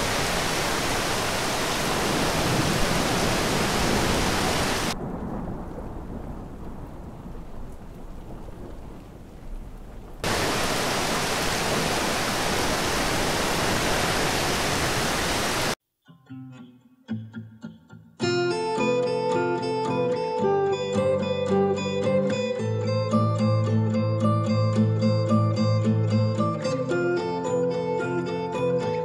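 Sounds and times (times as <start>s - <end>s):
churning water: 0.0s - 5.0s, 10.2s - 15.8s
heavy rain: 0.0s - 15.8s.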